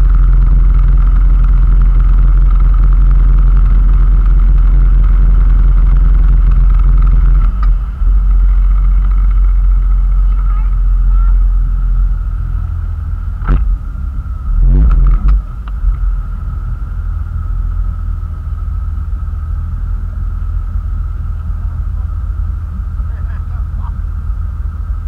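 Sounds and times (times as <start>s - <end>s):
loud thumps: 0.0s - 11.5s, 13.2s - 16.4s
boat engine rumble and whine: 0.0s - 25.0s
wind: 0.0s - 25.0s.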